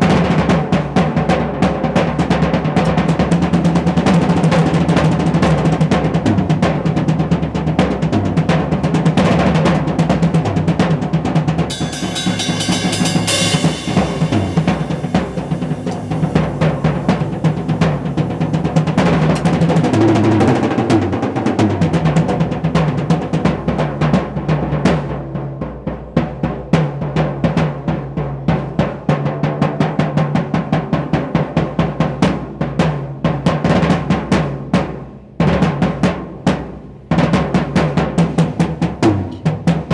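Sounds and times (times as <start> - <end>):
drum kit solo: 0.0 - 39.9
cymbal crash: 11.7 - 21.7.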